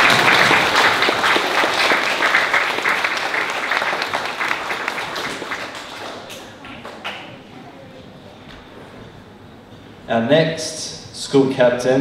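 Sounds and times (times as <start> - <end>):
children applauding: 0.0 - 7.4.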